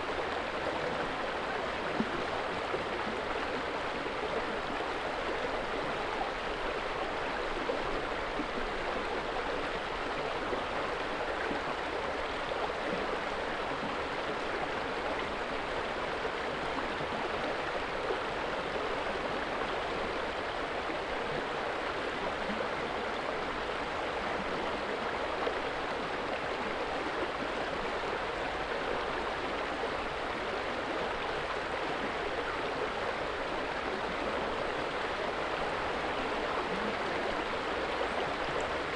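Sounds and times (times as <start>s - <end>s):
water rushing: 14.3s - 38.9s.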